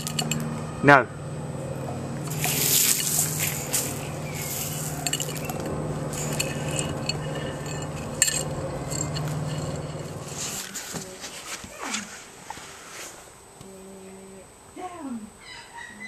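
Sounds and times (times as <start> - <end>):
low hum: 0.0 - 11.4
gravel and tile clinking: 2.3 - 11.1.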